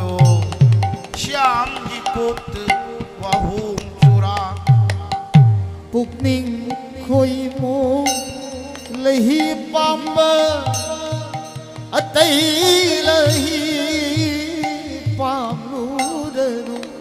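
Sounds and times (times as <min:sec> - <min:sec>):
sharp drum slaps: 0:00.0 - 0:06.4
barrel drums playing: 0:00.0 - 0:17.0.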